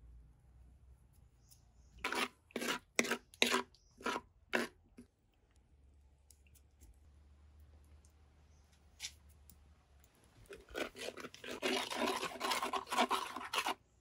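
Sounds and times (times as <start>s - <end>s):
spatula scraping clay pot: 1.8s - 5.1s, 10.5s - 13.8s.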